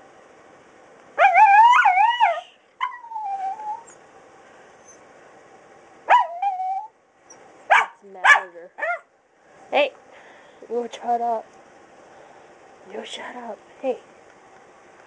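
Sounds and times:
dog whining: 1.2 - 4.0, 6.1 - 7.9, 8.8 - 9.1.

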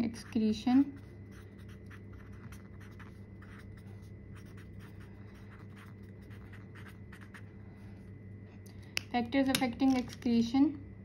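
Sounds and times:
marker scratching on paper: 0.0 - 7.4.

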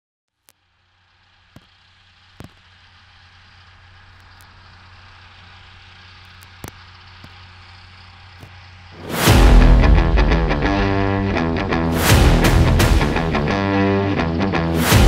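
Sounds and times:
engine idling: 0.6 - 15.0
low hum: 0.8 - 15.0
sharp clicks: 6.2 - 7.4.

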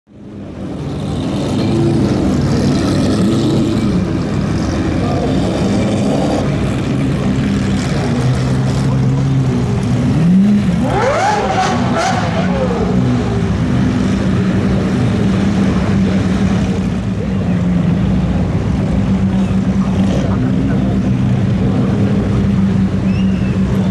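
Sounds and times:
car engines running at low speed: 0.1 - 23.9
engine revving up sharply: 10.1 - 13.3.

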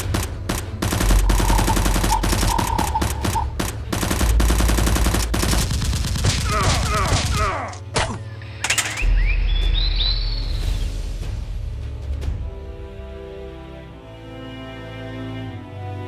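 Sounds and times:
automatic gunfire: 0.0 - 6.9
rising bird chirps: 8.8 - 11.0.

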